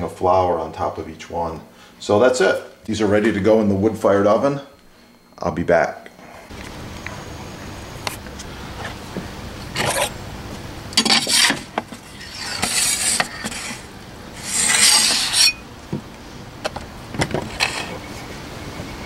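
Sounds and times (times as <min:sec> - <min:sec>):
wood scraping on stone: 0:09.7 - 0:10.2, 0:11.0 - 0:15.6, 0:17.3 - 0:18.1.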